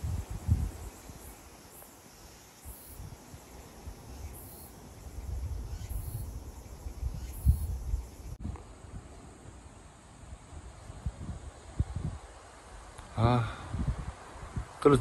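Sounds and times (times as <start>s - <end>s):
wind buffeting microphone: 0.0s - 1.4s, 2.8s - 9.2s, 10.4s - 12.4s, 13.6s - 15.0s.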